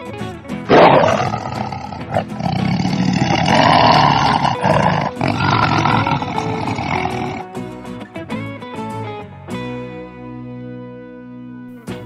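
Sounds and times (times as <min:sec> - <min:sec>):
tiger growling and roaring: 0:00.7 - 0:07.5.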